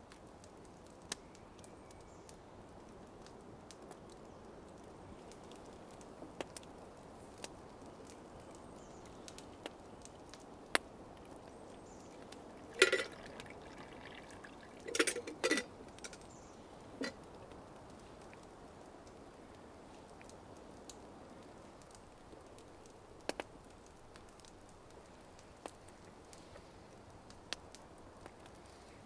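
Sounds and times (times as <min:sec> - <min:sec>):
campfire crackling and popping: 0:00.0 - 0:29.0
water pouring into a cup: 0:12.0 - 0:16.1.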